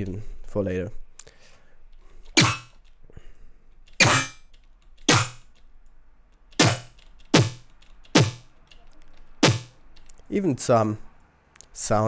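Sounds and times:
metallic synthesized hits: 2.4s - 2.7s, 4.0s - 4.4s, 6.6s - 7.6s, 9.4s - 9.8s.

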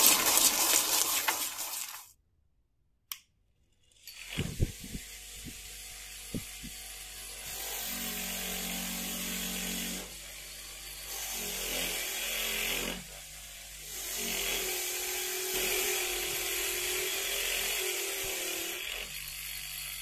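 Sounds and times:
bench grinder running: 3.9s - 20.0s.

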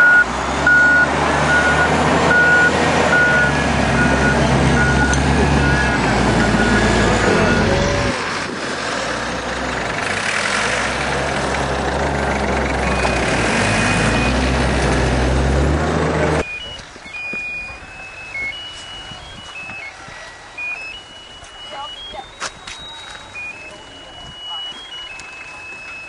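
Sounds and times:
reversing alarm beeps: 0.0s - 7.9s, 12.9s - 14.5s, 16.4s - 26.0s
bulldozer engine droning and revving: 0.0s - 21.4s, 23.2s - 26.0s.

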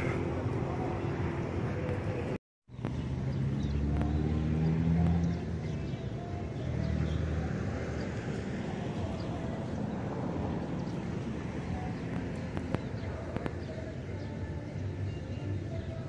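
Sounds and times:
steady traffic background noise: 0.0s - 16.0s
vehicle engine hum: 0.0s - 16.0s.

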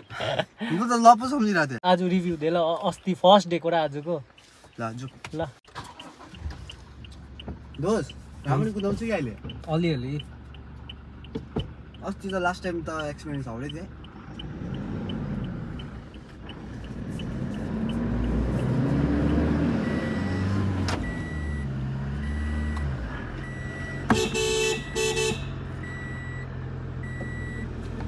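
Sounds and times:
car engine from inside cabin: 4.8s - 28.0s
short beeps: 23.4s - 27.7s
car horn: 23.9s - 25.8s.

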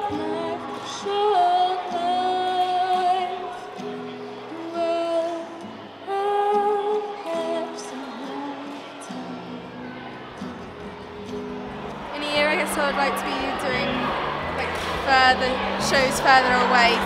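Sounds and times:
woman singing: 0.0s - 3.7s, 4.5s - 9.8s
acoustic guitar: 0.0s - 17.0s.

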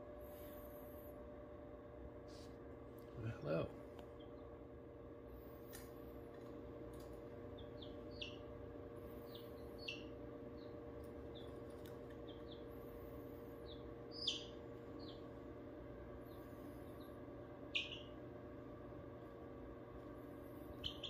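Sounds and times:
steady low hum: 0.0s - 21.0s
chicks peeping: 4.0s - 4.6s, 5.7s - 18.4s, 20.2s - 21.0s.

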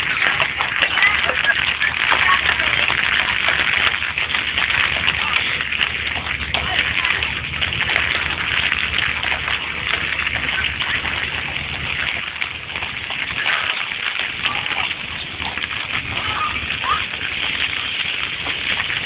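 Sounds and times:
low rumble: 0.0s - 19.0s
rain pattering hard: 0.0s - 19.0s.

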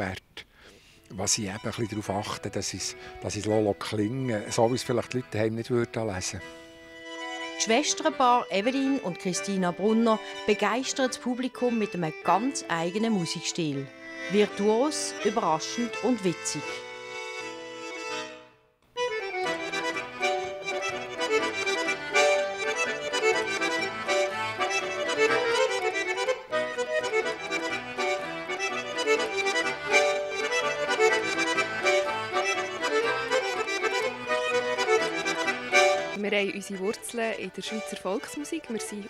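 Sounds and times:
button accordions playing folk tune: 0.7s - 39.0s.

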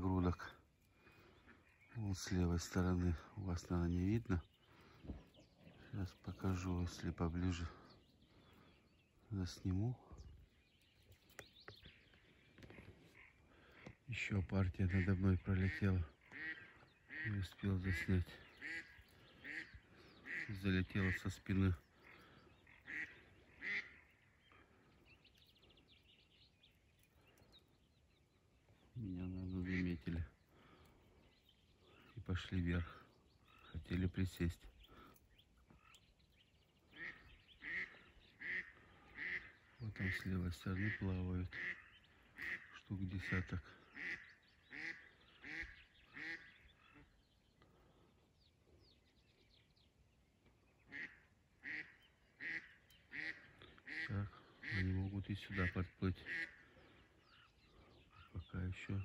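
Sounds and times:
faint bird chirping: 0.0s - 59.0s
duck quack: 14.9s - 21.2s, 22.8s - 24.1s, 37.0s - 40.2s, 40.8s - 47.1s, 50.9s - 56.9s.

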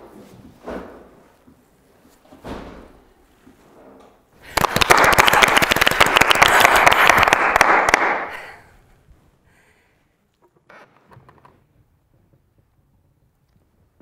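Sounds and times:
audience applauding: 4.4s - 8.5s.

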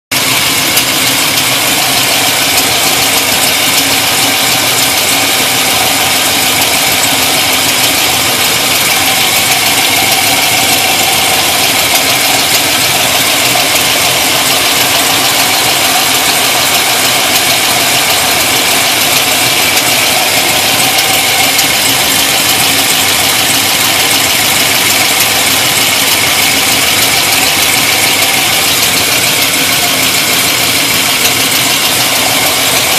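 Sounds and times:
car engine idling: 0.1s - 32.9s
engine ticking: 0.1s - 32.9s.

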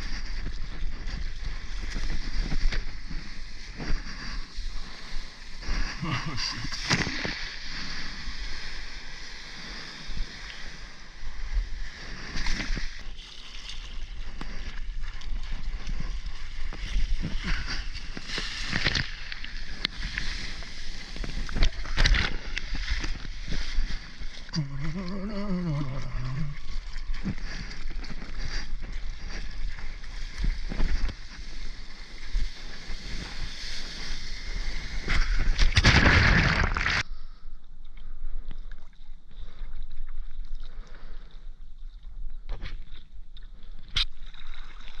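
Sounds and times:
churning water surge: 29.2s - 37.0s.

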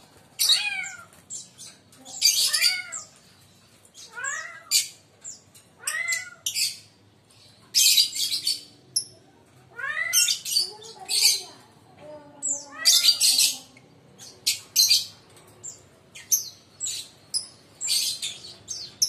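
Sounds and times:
lovebirds shrieking: 0.4s - 1.4s, 2.2s - 3.2s, 4.0s - 6.9s, 9.8s - 11.5s, 12.4s - 13.7s, 14.4s - 19.0s
meow-like bird calls: 0.4s - 1.4s, 2.2s - 3.2s, 4.0s - 6.9s, 9.6s - 11.3s, 12.4s - 13.7s.

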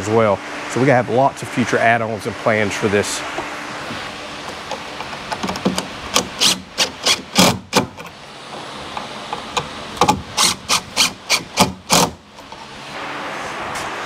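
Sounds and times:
cordless drill driving screws: 6.1s - 7.9s, 10.0s - 12.2s.

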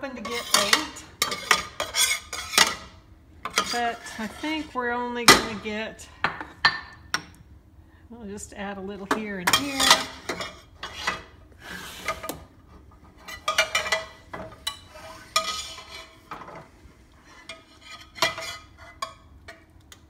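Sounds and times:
metal ladle scraping a skillet: 0.0s - 5.0s, 9.5s - 19.6s.

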